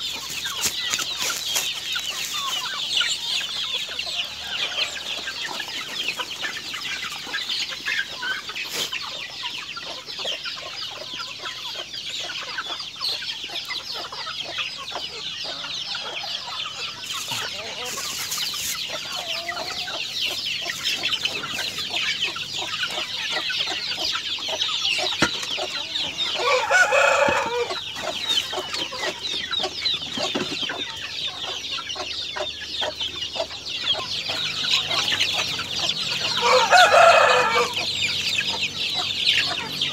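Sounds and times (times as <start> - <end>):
chicks peeping and clucking: 0.0 - 39.9
rooster crowing: 4.0 - 5.6, 25.9 - 27.8, 36.1 - 38.0.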